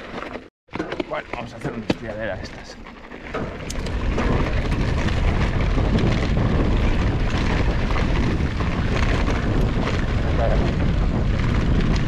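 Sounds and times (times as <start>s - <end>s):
bike tyre trail noise: 0.0s - 12.0s
wind buffeting microphone: 3.5s - 12.0s.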